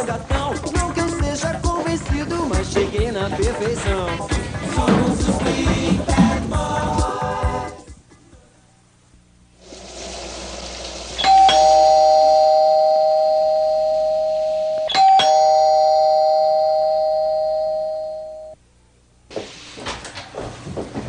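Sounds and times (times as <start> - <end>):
doorbell ding-dong chime: 11.2 - 18.6.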